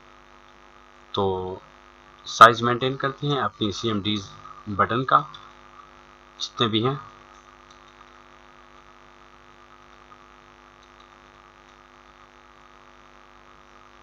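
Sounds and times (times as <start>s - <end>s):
low electrical mains hum: 0.0s - 14.0s
faint clicks: 7.3s - 8.9s, 9.9s - 12.3s.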